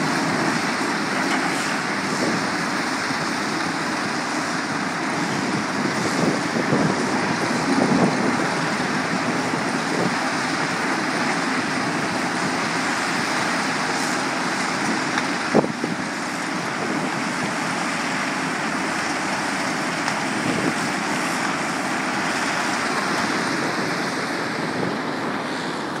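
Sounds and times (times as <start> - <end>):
rock crusher and excavators working: 0.0 - 26.0.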